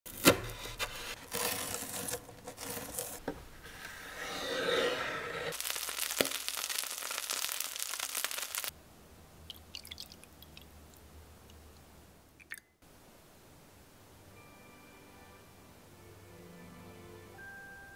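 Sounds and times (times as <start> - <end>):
oil sizzling in a pan: 5.5 - 8.7
liquid trickling into a glass: 9.5 - 10.7.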